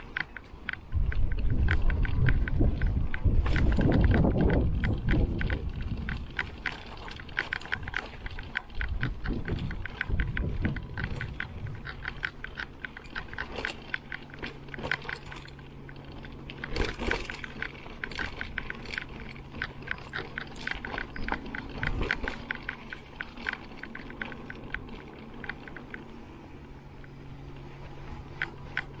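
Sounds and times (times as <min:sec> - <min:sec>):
bike clicks and rattles: 0:00.0 - 0:29.0
mountain bike rolling on dirt: 0:00.0 - 0:29.0
steady low hum: 0:00.0 - 0:29.0
wind rumble: 0:00.0 - 0:29.0.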